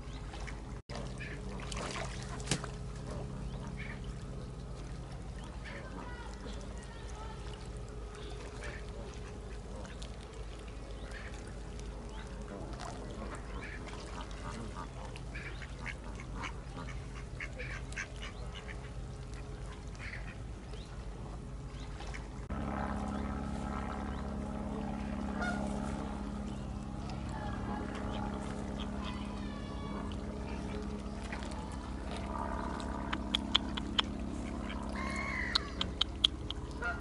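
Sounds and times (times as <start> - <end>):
steady low hum: 0.0 - 37.0
ducks quacking: 0.9 - 4.1, 12.4 - 20.4, 32.6 - 37.0.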